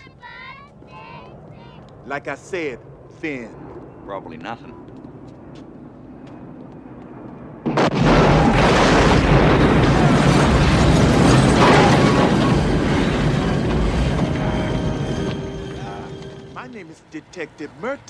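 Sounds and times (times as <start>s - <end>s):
loud explosion blast: 7.6s - 15.0s
debris rush with deep rumble: 7.6s - 16.2s.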